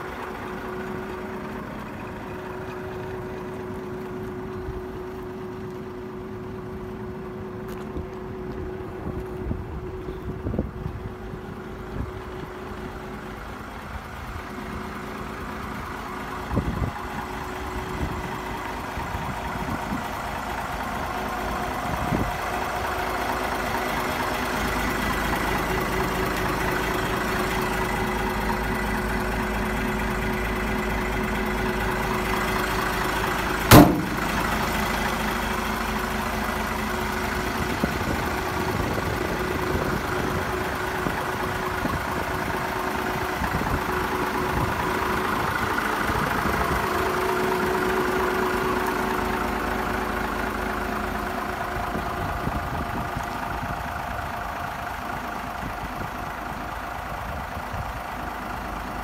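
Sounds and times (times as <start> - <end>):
diesel truck engine idling: 0.0 - 59.0
sharp knock: 33.7 - 34.4.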